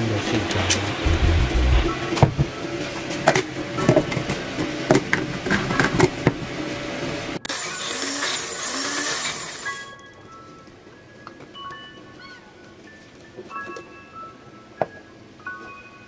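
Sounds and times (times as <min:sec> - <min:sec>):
blender whirring: 0:07.4 - 0:09.8.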